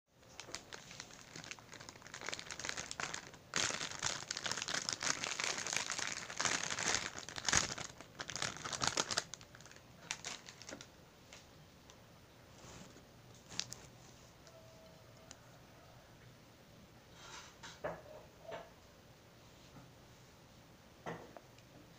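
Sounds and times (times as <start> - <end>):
plastic wrappers crinkling: 0.2 - 11.4, 12.6 - 14.2.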